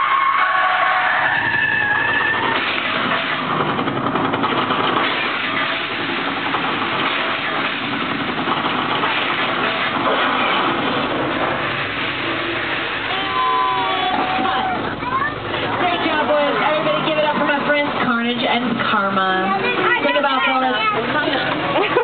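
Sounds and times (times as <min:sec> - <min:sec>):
loud car engine noise: 0:01.2 - 0:18.9.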